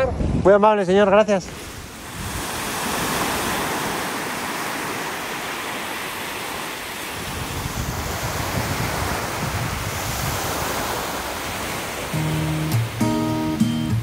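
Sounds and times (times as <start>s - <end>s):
wind rumble on microphone: 0.0s - 4.0s, 7.1s - 13.0s
small waves breaking on beach: 1.3s - 14.0s.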